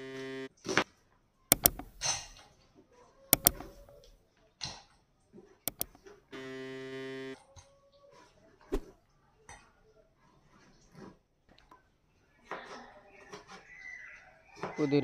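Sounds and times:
steady buzzing tone: 0.0s - 0.5s, 5.7s - 7.4s
mouse clicks: 1.5s - 2.4s, 3.4s - 4.2s, 5.7s - 6.0s.

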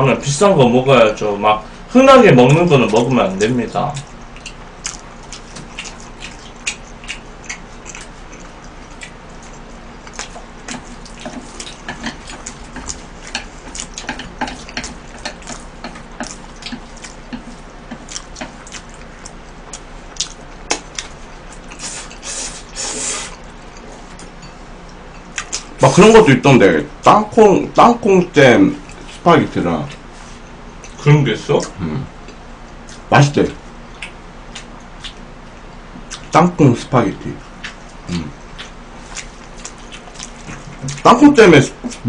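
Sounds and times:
wet chewing and slurping: 3.9s - 25.8s, 37.5s - 41.1s.

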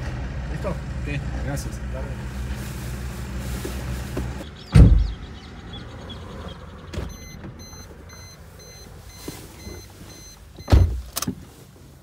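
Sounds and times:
car door shutting: 4.2s - 5.2s, 6.9s - 7.8s, 9.2s - 11.4s
electronic warning chime beeping: 7.1s - 10.8s.

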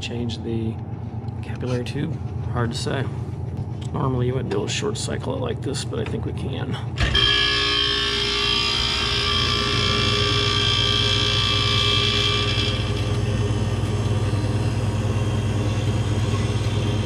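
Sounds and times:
freezer compressor hum: 0.0s - 17.0s
loud high-pitched compressor noise: 7.0s - 17.0s.

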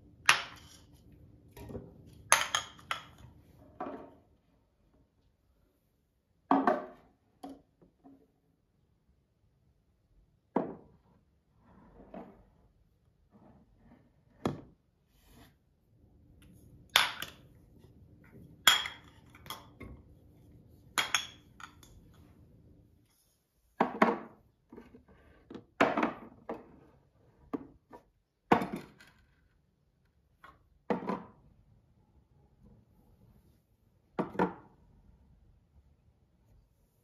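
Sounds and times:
glass jars clinking on shelf: 18.7s - 19.8s, 21.0s - 22.0s.

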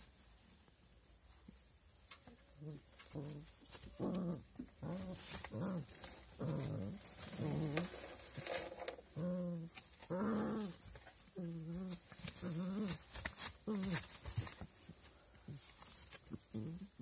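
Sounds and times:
puppies growling and whining: 2.5s - 14.5s.

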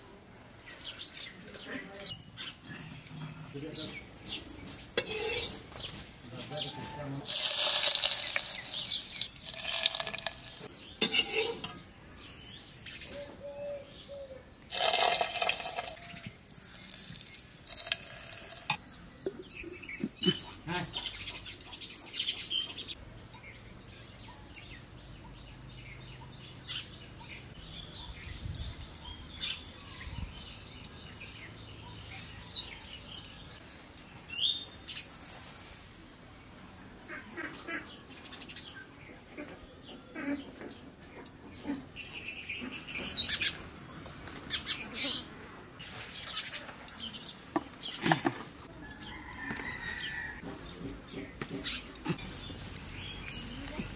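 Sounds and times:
faint birds chirping: 0.0s - 7.2s, 10.6s - 14.7s, 15.7s - 53.9s
oil splashing into clay pots: 7.2s - 10.7s, 14.7s - 18.8s.

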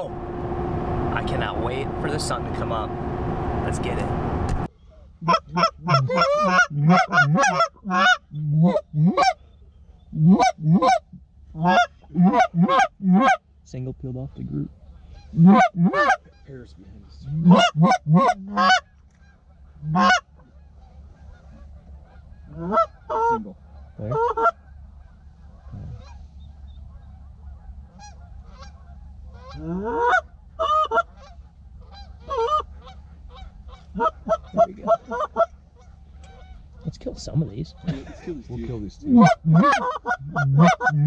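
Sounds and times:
goose call honks and clucks: 5.2s - 9.4s, 10.1s - 13.4s, 14.6s - 16.6s, 17.2s - 36.9s, 37.7s - 41.0s.

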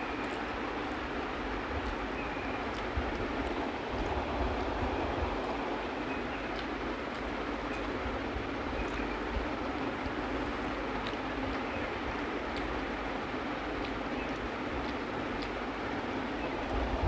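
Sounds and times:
steady background hiss: 0.0s - 17.0s
chewing: 2.6s - 4.6s, 5.4s - 8.0s, 8.8s - 16.9s.

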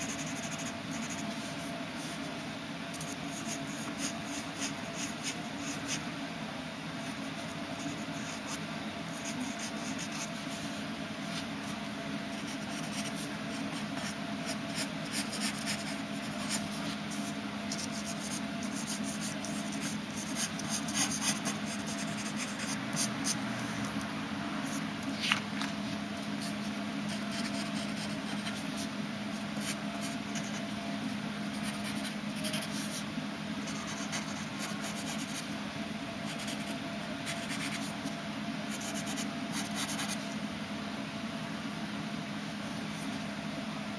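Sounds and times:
pencil scratching on paper: 0.0s - 2.3s, 3.0s - 6.0s, 7.0s - 23.7s, 26.2s - 30.8s, 31.5s - 35.5s, 36.3s - 38.1s, 38.7s - 40.2s
steady low hum: 0.0s - 43.9s.

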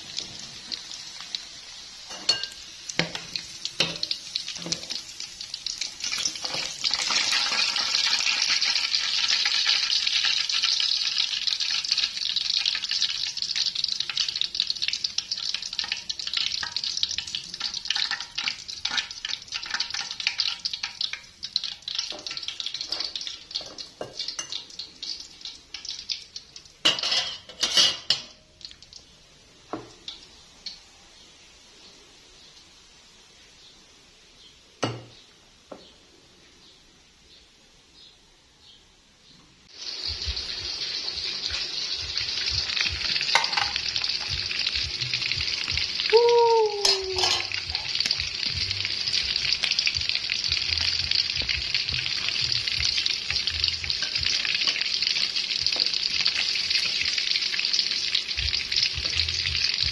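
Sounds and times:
meat sizzling in hot oil: 0.0s - 31.2s, 39.6s - 59.9s
metal tongs scraping pot: 46.8s - 48.1s.

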